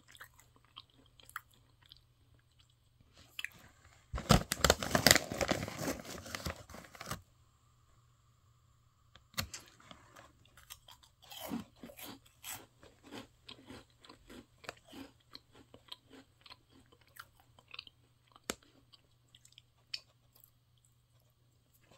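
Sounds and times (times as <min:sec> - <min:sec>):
crunching and chewing: 0:00.0 - 0:03.7, 0:09.5 - 0:21.9.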